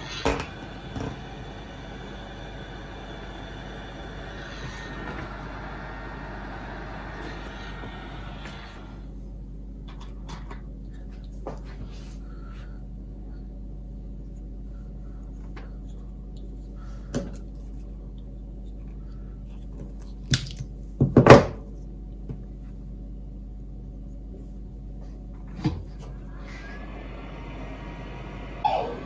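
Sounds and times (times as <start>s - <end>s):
heat gun blowing hiss: 0.0s - 9.0s.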